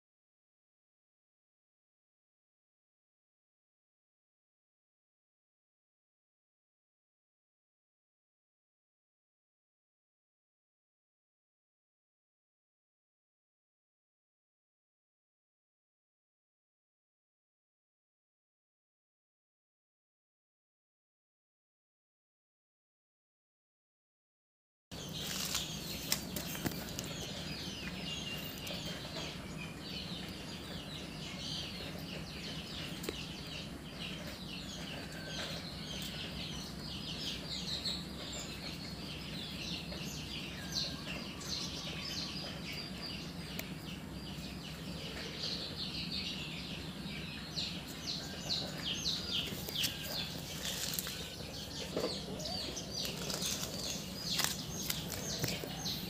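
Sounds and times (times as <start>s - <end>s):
small birds chirping: 24.9s - 56.0s.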